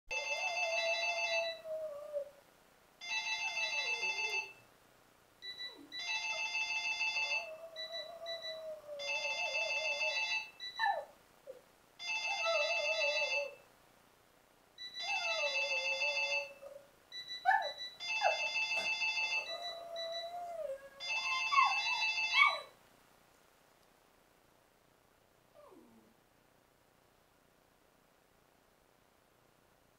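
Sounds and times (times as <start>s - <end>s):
telephone ringtone trilling: 0.1s - 1.6s, 3.0s - 4.6s, 5.4s - 10.8s, 12.0s - 13.6s, 15.0s - 16.6s, 18.0s - 20.4s, 21.0s - 22.7s
small dog howling: 0.3s - 2.3s, 7.2s - 11.6s, 15.0s - 16.8s, 17.5s - 22.7s.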